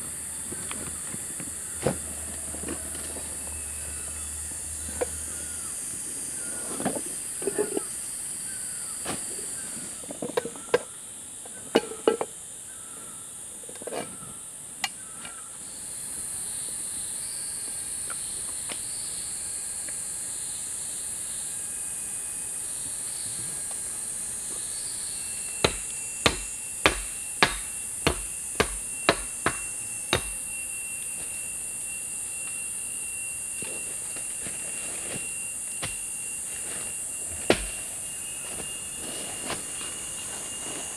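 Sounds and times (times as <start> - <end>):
insects droning: 0.0 - 40.9
sharp knocks on wood: 25.6 - 30.4.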